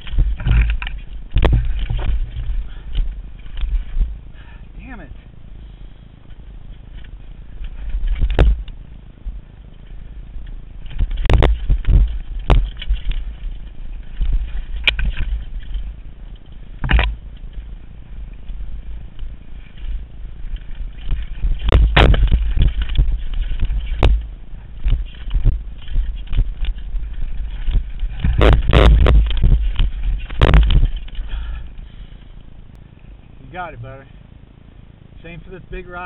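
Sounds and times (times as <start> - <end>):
tyres crunching over stones: 0.0 - 4.5, 9.7 - 32.6
bike knocking on rocks: 0.0 - 4.6, 6.3 - 8.8, 9.7 - 32.4
low rumble: 0.0 - 36.0.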